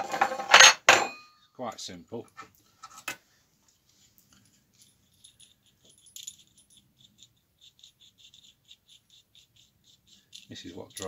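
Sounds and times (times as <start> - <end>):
small metal parts clicking: 4.8 - 11.0.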